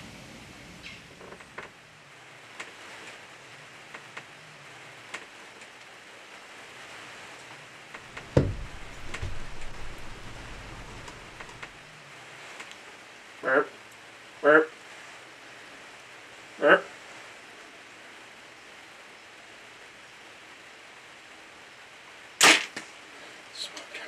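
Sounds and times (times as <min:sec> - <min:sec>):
light rain pattering: 0:00.0 - 0:24.0
low thumps: 0:08.0 - 0:11.8
low rumble: 0:08.1 - 0:11.9.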